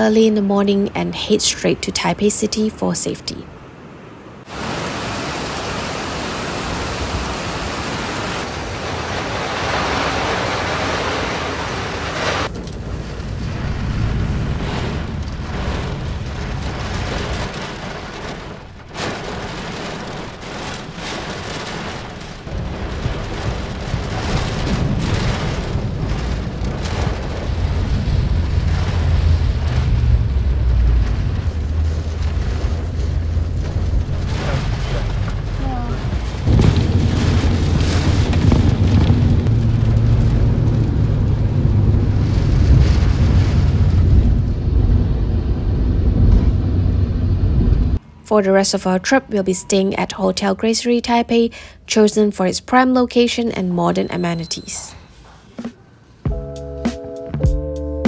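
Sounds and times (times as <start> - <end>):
strong gusting wind: 3.5 - 48.2
heavy rain pouring: 4.4 - 48.2.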